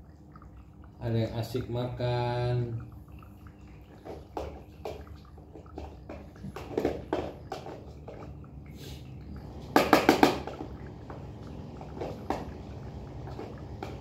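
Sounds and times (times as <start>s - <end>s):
cat eating wet food: 2.9s - 14.0s.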